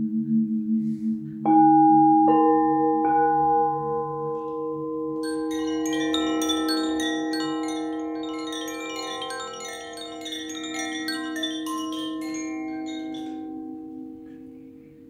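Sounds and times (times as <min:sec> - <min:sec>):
high quick chime notes: 0:05.2 - 0:13.6
bell-like tones ringing: 0:05.2 - 0:14.7.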